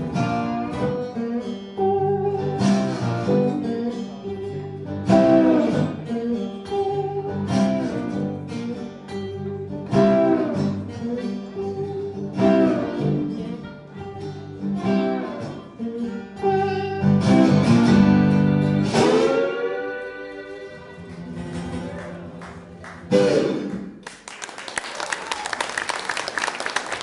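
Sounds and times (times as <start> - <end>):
harmonica: 0.0 - 21.3
acoustic guitars strumming: 0.0 - 24.0.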